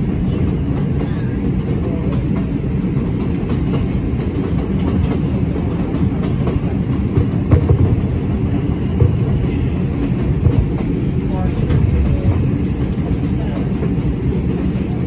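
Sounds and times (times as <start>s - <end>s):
subway wheels rumbling on rails: 0.0s - 15.0s.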